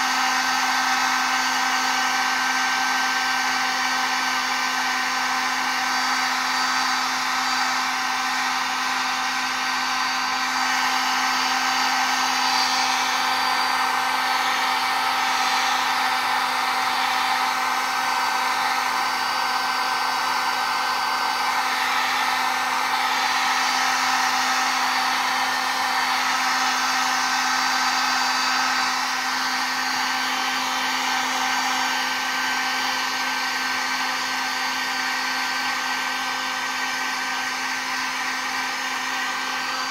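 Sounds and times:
heat gun blowing air: 0.0 - 39.9.

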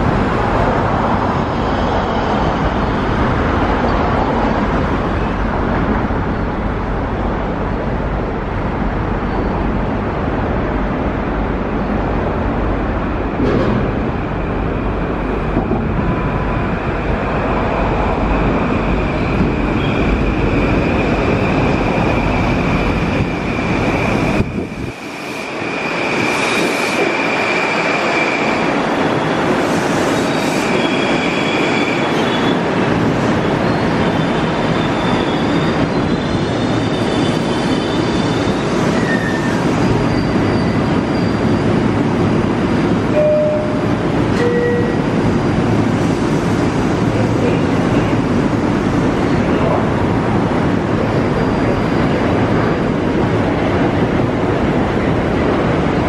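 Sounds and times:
train wheels rumbling on rails: 0.0 - 56.0
high-pitched train squeal: 16.1 - 32.8, 33.4 - 41.9, 43.1 - 45.2, 51.0 - 53.0.

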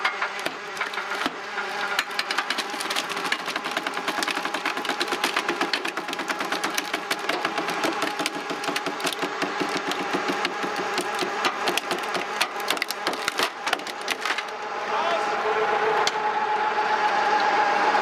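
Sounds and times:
log splitter engine running: 0.0 - 18.0
log cracking and splintering: 0.4 - 14.6.

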